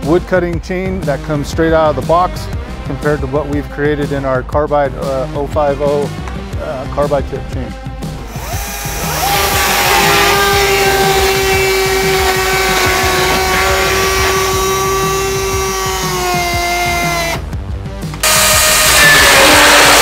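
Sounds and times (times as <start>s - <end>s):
electric chainsaw cutting: 8.2s - 17.5s, 18.2s - 20.0s.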